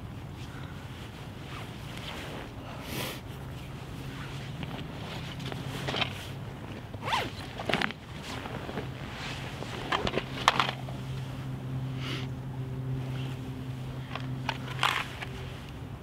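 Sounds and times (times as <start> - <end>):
steady low hum: 0.0 - 16.0
fabric rustling: 0.2 - 2.6, 3.3 - 11.6.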